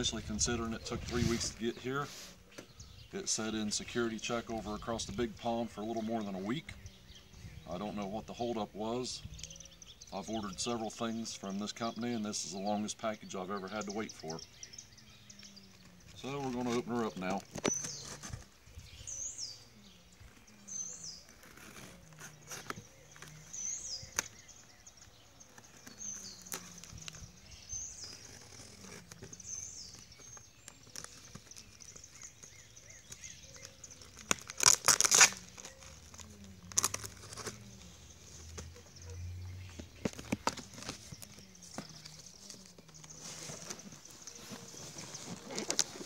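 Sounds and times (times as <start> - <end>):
bird chirping: 0.0 - 46.0
packing tape tearing: 21.2 - 24.4, 28.0 - 37.8, 44.9 - 46.0.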